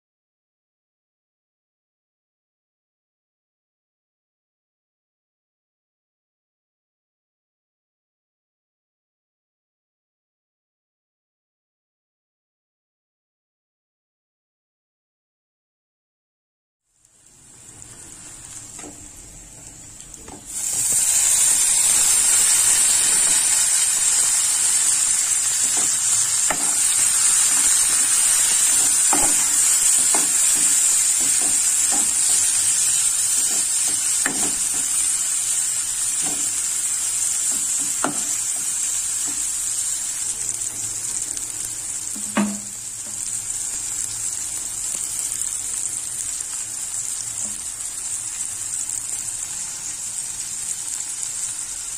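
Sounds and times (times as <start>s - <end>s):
vegetables sizzling in oil: 16.9s - 51.9s.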